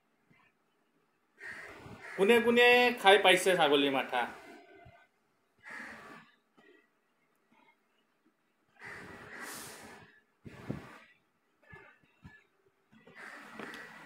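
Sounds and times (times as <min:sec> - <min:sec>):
man breathing heavily through nose: 0:08.8 - 0:11.1.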